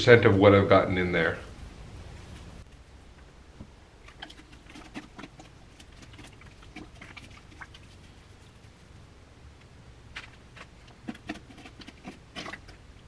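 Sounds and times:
wet sponge squelching: 4.1s - 9.0s, 10.6s - 12.9s.

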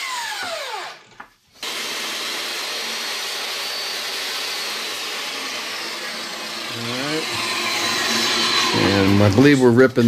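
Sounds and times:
table saw cutting wood: 0.0s - 1.0s, 1.6s - 10.0s.

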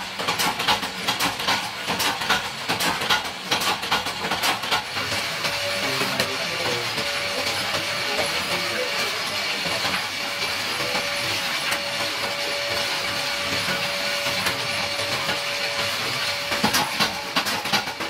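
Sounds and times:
slitting machine whining: 4.9s - 18.0s.

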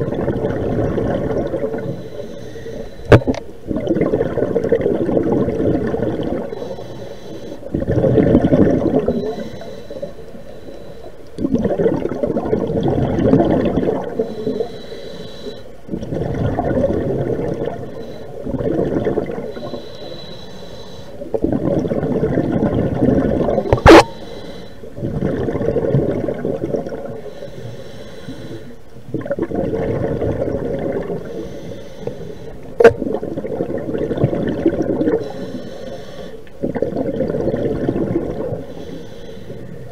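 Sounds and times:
exhaled bubbles rushing: 0.0s - 1.9s, 3.1s - 6.6s, 7.7s - 9.2s, 11.4s - 14.2s, 15.9s - 19.6s, 21.3s - 24.1s, 25.0s - 27.2s, 29.1s - 31.3s, 32.8s - 35.3s, 36.6s - 38.6s
regulator inhalation hiss: 1.8s - 3.1s, 6.6s - 7.7s, 9.2s - 11.2s, 14.2s - 15.8s, 17.9s - 18.5s, 19.5s - 21.3s, 24.1s - 24.9s, 27.2s - 28.8s, 31.2s - 32.7s, 35.2s - 36.5s, 38.6s - 39.9s.

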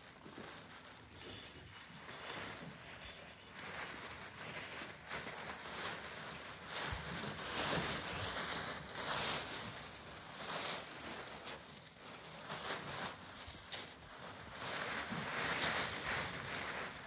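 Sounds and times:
tissue paper rustling: 0.0s - 17.0s.

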